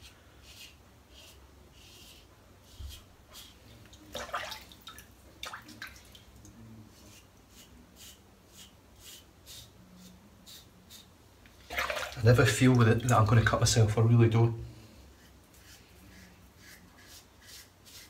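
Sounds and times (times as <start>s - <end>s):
razor scraping stubble: 7.0s - 11.1s, 15.2s - 18.0s.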